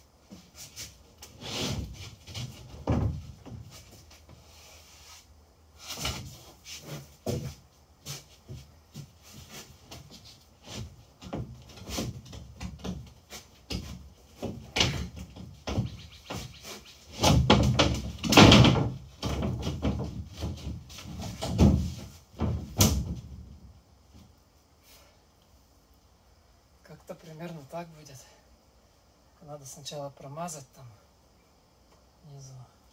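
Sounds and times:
plywood knocking and scraping: 0:01.3 - 0:04.4, 0:05.8 - 0:24.3
wood clattering: 0:08.5 - 0:23.5.

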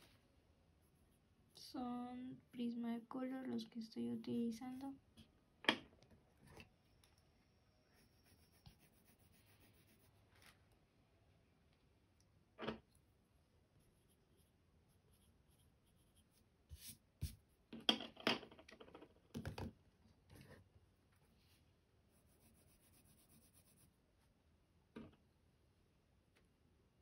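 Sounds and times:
pencil scratching on paper: 0:07.9 - 0:10.5, 0:13.8 - 0:17.4, 0:22.1 - 0:23.9.

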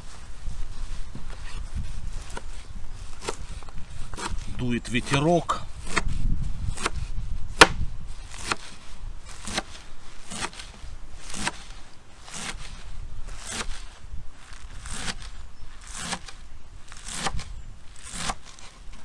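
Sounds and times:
wind rumble on microphone: 0:00.0 - 0:18.1.

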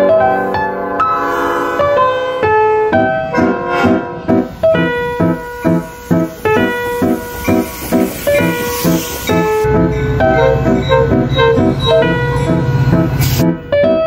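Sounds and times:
piano chords: 0:00.0 - 0:14.0.

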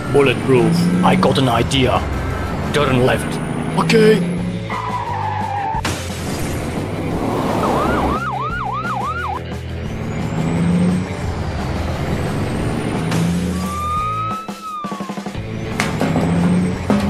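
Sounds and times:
background music: 0:00.0 - 0:17.0
car engine and road noise: 0:00.0 - 0:17.0
siren yelp: 0:07.6 - 0:09.4, 0:13.5 - 0:15.5.

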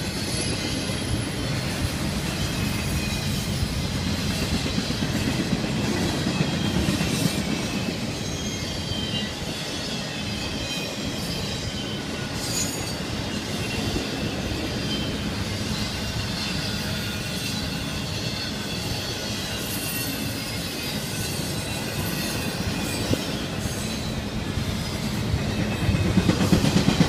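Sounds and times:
train wheels rumbling on rail: 0:00.0 - 0:27.0
high-pitched wheel squeals: 0:07.9 - 0:26.0.

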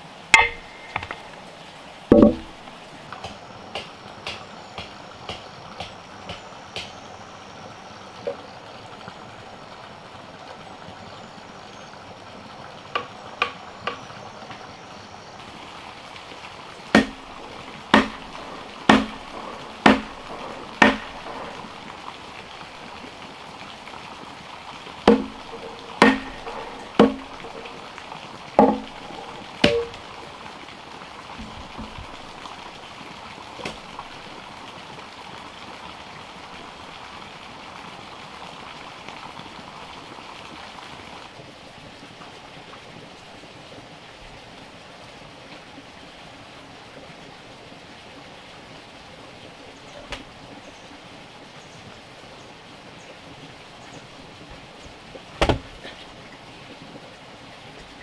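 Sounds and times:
hand tool chopping a log: 0:00.4 - 0:01.2, 0:02.1 - 0:02.6, 0:03.2 - 0:07.0, 0:16.9 - 0:17.2, 0:17.9 - 0:18.3, 0:18.9 - 0:21.4, 0:25.0 - 0:27.7, 0:28.6 - 0:29.0, 0:29.6 - 0:30.0, 0:55.4 - 0:55.7.

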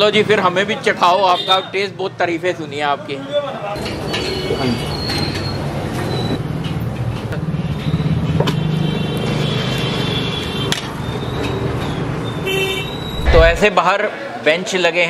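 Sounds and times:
people talking: 0:13.2 - 0:14.0.

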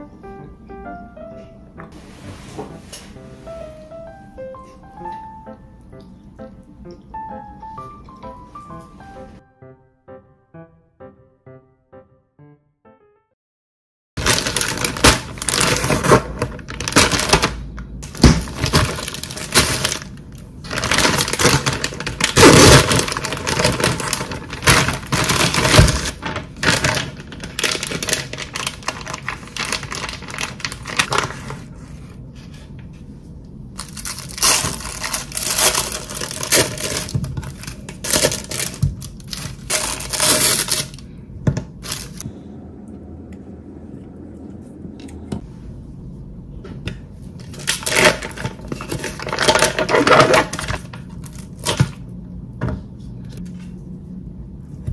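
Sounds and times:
plastic packaging crackling: 0:14.2 - 0:31.8, 0:33.8 - 0:41.1, 0:41.8 - 0:42.2, 0:47.4 - 0:52.0.

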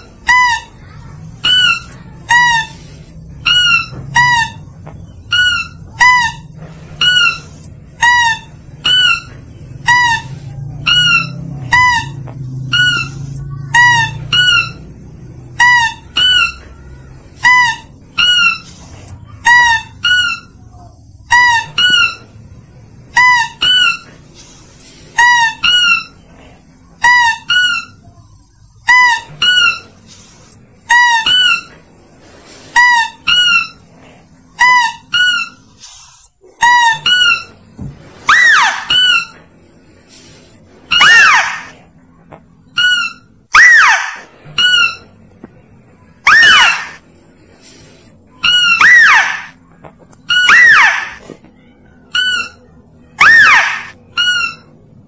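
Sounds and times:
short high squeaky calls: 0:00.0 - 0:22.3, 0:23.1 - 0:24.5, 0:25.2 - 0:28.2, 0:28.8 - 0:30.3, 0:30.9 - 0:31.8, 0:32.7 - 0:33.9, 0:34.6 - 0:36.0, 0:36.6 - 0:37.6, 0:38.2 - 0:39.4, 0:40.9 - 0:41.8, 0:42.7 - 0:45.1, 0:46.2 - 0:47.0, 0:48.4 - 0:49.6, 0:50.2 - 0:51.3, 0:52.1 - 0:54.8.

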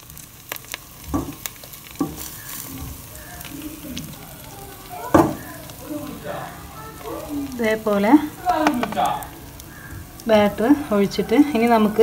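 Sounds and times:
batter sizzling in hot oil: 0:00.0 - 0:12.0
knocks on pan: 0:01.1 - 0:01.4, 0:02.0 - 0:02.2, 0:05.1 - 0:05.5.

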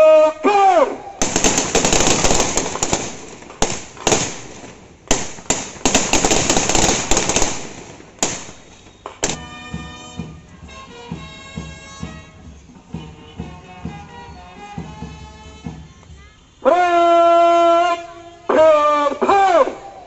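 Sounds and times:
rifle shots cracking: 0:01.2 - 0:09.4
band playing an anthem: 0:07.7 - 0:19.9.

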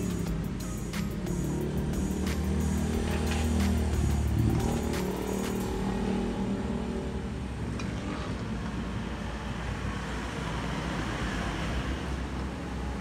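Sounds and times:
road traffic rumble and hiss: 0:00.0 - 0:13.0.

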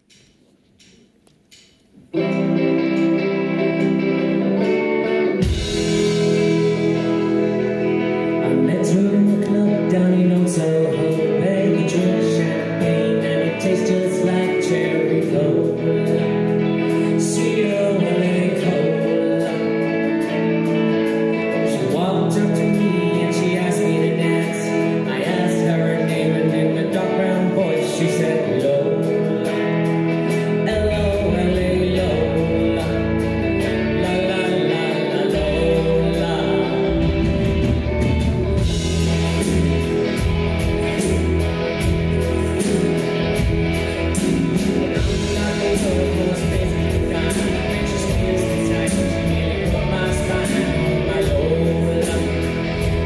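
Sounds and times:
electric guitars: 0:01.5 - 0:53.0
drum kit with cymbals: 0:05.4 - 0:07.6, 0:28.9 - 0:53.0
deep bass line: 0:05.4 - 0:10.6, 0:30.2 - 0:53.0
woman singing: 0:08.4 - 0:16.3, 0:17.1 - 0:20.0, 0:30.6 - 0:33.3, 0:33.9 - 0:37.6, 0:45.0 - 0:52.6.

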